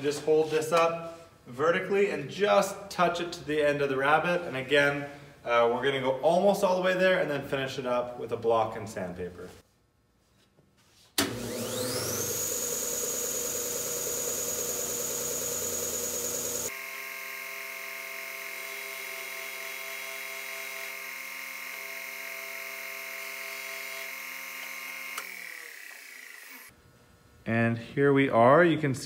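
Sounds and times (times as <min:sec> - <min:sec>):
sander motor whining: 0:11.2 - 0:26.7.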